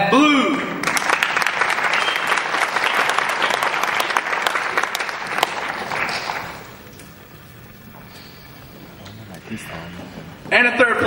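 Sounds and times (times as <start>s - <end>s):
audience applauding: 0.8s - 6.9s.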